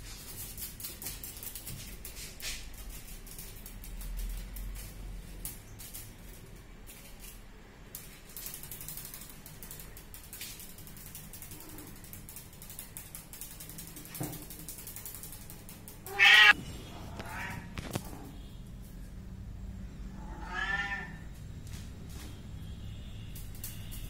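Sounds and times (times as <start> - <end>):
faint clicking and rustling: 0.0 - 16.2, 23.3 - 24.0
cat meowing: 16.1 - 17.8, 20.2 - 21.2.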